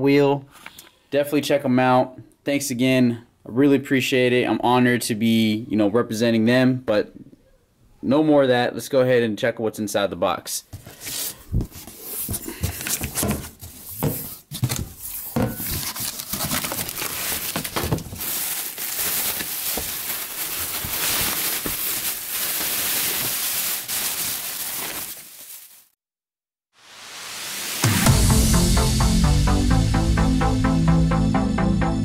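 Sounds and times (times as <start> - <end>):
cardboard packaging handled: 10.7 - 25.9
plastic wrapping crinkling: 10.8 - 26.0.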